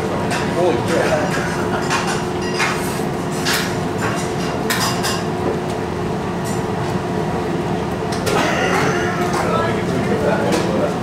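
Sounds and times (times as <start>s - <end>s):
restaurant room hum: 0.0s - 11.0s
dishes and cutlery clattering: 0.3s - 2.8s.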